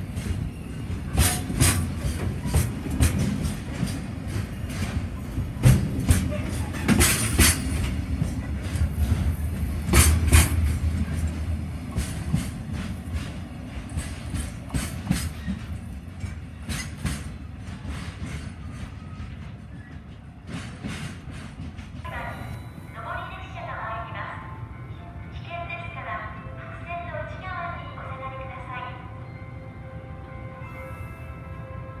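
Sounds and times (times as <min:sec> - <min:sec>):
freight train wheels clacking: 0:00.0 - 0:22.1
heavy train rumble: 0:00.0 - 0:32.0.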